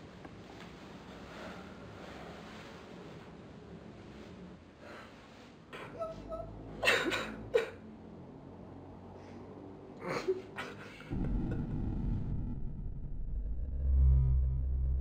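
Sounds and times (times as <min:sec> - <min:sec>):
low rumble: 0:11.1 - 0:15.0.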